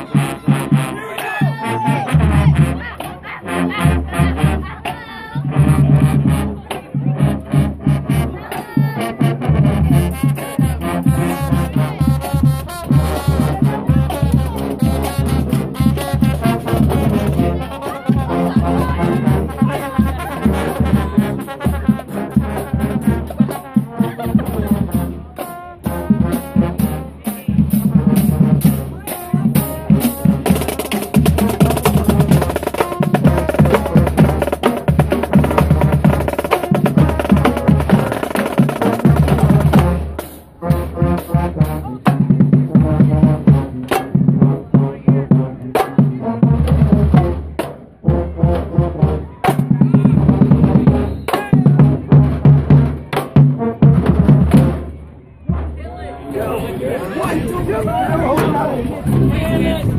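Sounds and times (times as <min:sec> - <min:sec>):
brass section playing: 0:00.0 - 0:59.9
marching band drumline: 0:00.0 - 0:59.9.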